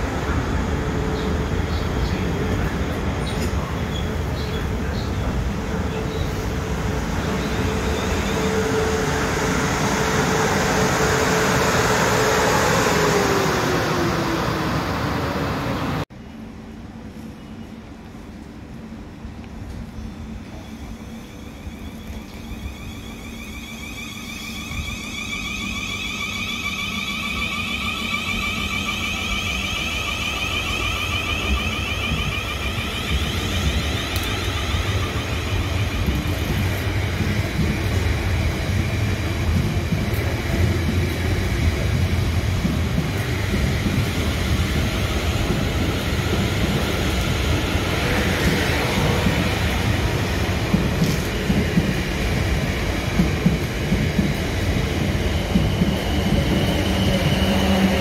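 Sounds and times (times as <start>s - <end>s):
train traction motor whine: 4.2s - 16.0s, 20.5s - 58.0s.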